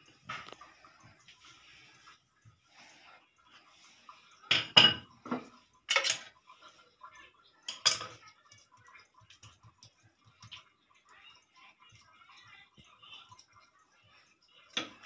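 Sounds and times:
utensils clattering on stone: 4.5 - 6.3, 7.7 - 8.2.

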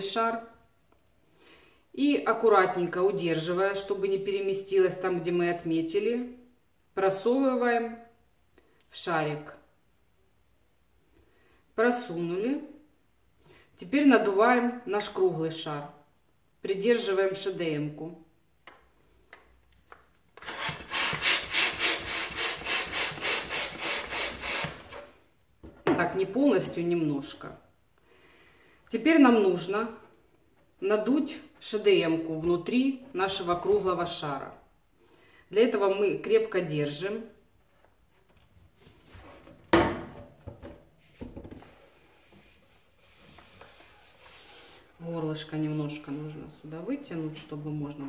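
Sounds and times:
hand balloon pump strokes: 20.4 - 25.1, 41.0 - 45.0.

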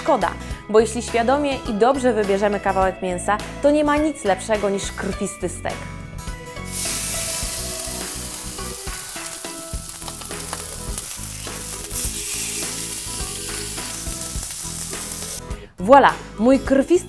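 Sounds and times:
steak sizzling in grill pan: 6.6 - 15.4.

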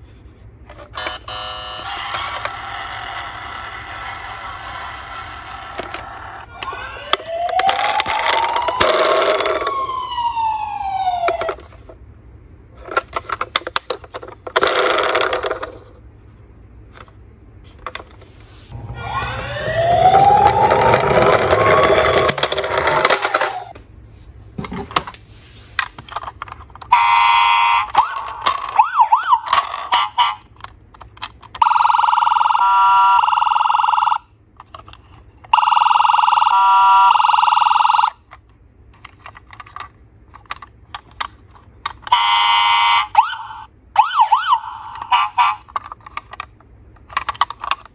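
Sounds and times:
toy siren sound effects: 0.9 - 11.6, 18.8 - 23.7, 26.9 - 30.5, 31.5 - 34.3, 35.5 - 38.2, 42.0 - 45.8
plastic toys clicking: 5.7 - 9.7, 27.8 - 31.7, 38.3 - 42.6, 44.8 - 47.9.

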